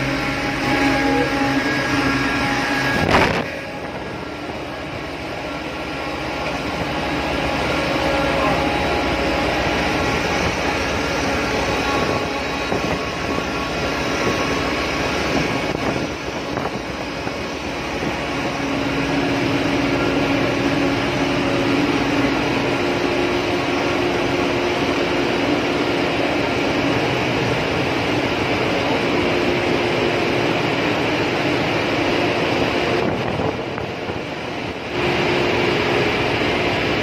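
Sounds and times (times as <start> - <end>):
engine-room machinery drone: 0.0 - 37.0
low hum: 0.0 - 37.0.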